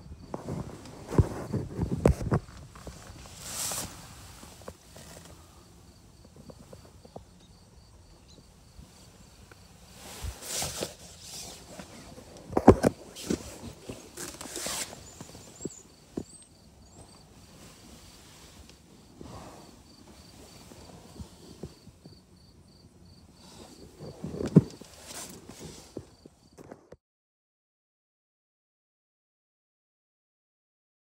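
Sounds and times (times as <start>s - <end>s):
rustling inside a tent: 0.0s - 26.9s
tent fabric swishing: 0.4s - 5.3s, 9.9s - 12.4s, 13.0s - 15.7s, 23.4s - 26.0s.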